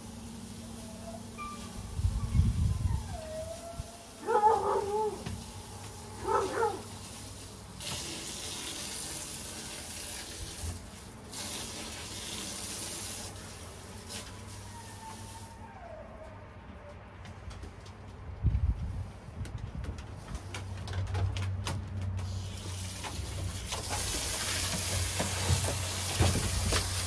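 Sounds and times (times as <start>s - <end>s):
water hissing from a hose: 0.0s - 15.6s, 22.2s - 27.0s
dog whining: 0.8s - 6.9s, 14.2s - 17.1s.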